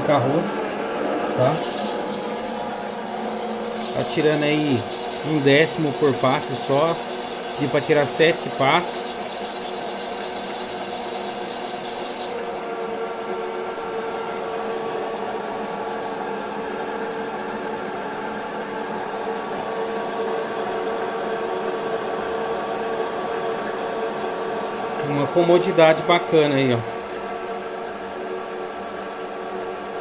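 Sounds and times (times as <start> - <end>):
lathe running: 0.0 - 30.0.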